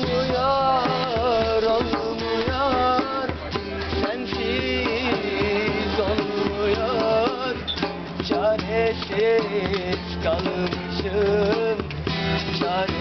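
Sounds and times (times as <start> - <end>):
man singing: 0.0 - 13.0
strummed acoustic guitar: 0.0 - 13.0.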